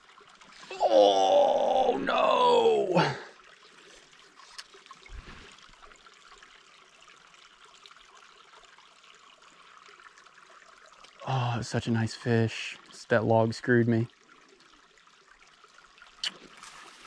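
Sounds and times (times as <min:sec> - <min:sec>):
creek trickling: 0:00.0 - 0:17.0.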